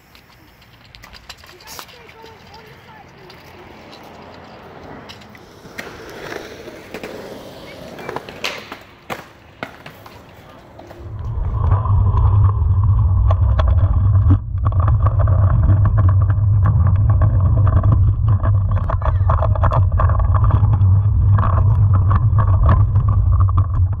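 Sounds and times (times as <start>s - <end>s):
wheels clicking over joints: 0.0s - 11.4s
small wheels rolling on concrete: 0.0s - 24.0s.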